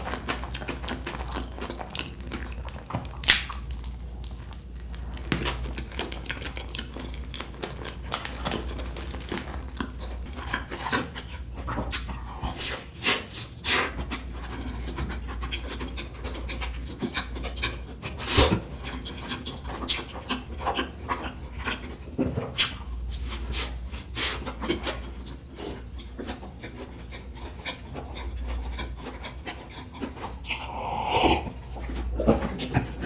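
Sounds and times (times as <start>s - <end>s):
person chewing: 0.0s - 33.0s
steady low hum: 0.0s - 33.0s.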